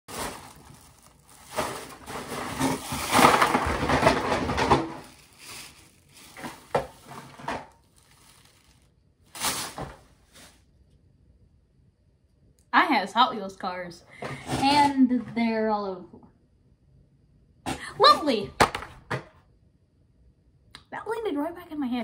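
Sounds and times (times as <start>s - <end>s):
plastic bag rustling: 0.0s - 10.6s.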